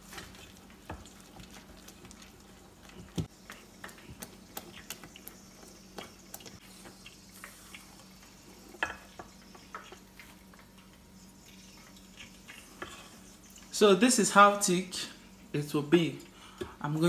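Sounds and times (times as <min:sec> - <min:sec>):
spatula beating batter in metal bowl: 0:00.0 - 0:07.6
faint steady hum: 0:00.0 - 0:17.0.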